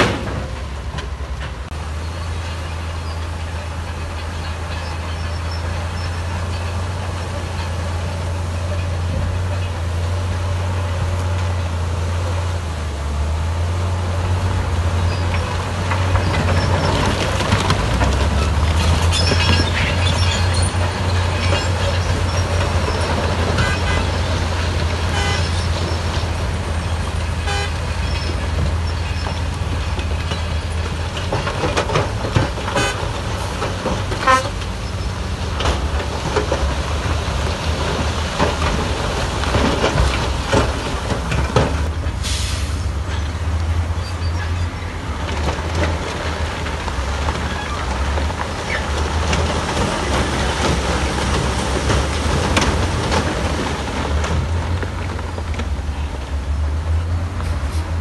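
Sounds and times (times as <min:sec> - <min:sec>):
metallic clanks and knocks: 0:00.0 - 0:01.7
diesel engine drone: 0:00.0 - 0:58.0.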